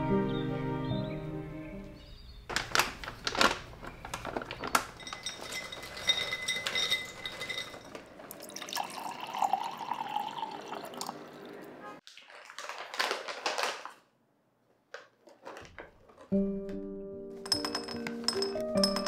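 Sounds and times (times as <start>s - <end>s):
nuts rattling into glass jar: 2.7s - 8.0s, 17.4s - 19.0s
water pouring into jar: 5.3s - 13.1s.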